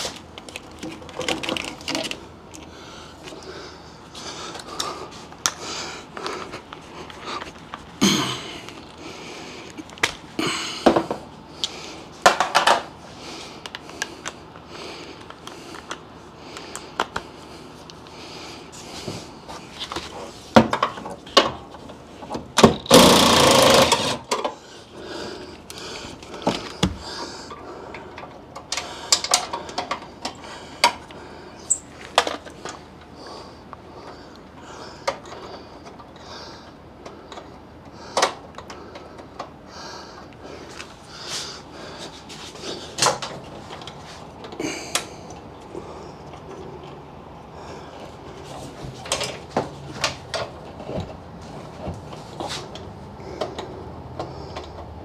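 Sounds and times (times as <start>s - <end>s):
impact driver hammering: 22.6s - 24.3s.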